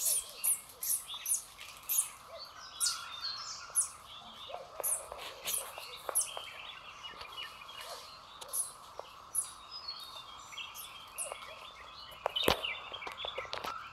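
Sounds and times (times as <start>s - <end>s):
forest birds chirping: 0.0s - 13.9s
steady background hiss: 0.0s - 13.9s.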